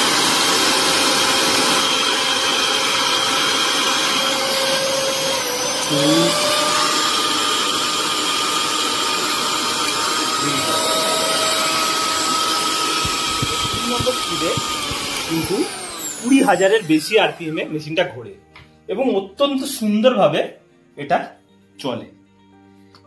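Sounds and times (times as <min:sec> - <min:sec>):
mixer grinder motor whining: 0:00.0 - 0:18.0.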